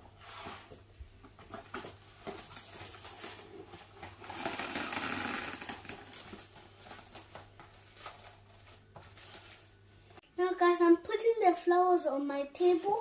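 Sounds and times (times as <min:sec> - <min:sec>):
cling film crinkling: 0:01.8 - 0:09.8.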